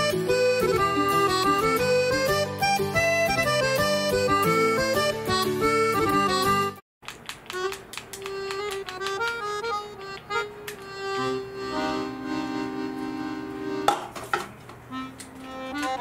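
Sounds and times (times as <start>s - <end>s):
comical accordion music: 0.0s - 6.8s, 7.6s - 16.0s.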